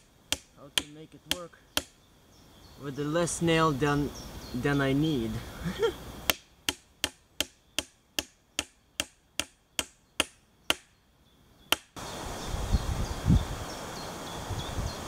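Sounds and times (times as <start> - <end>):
hammer driving nail into wood: 0.0 - 1.9, 6.3 - 10.9.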